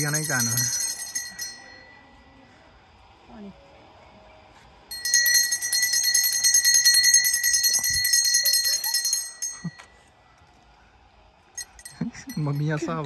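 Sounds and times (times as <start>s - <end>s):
brass hand bell ringing rapidly: 0.0s - 1.8s, 4.9s - 9.8s.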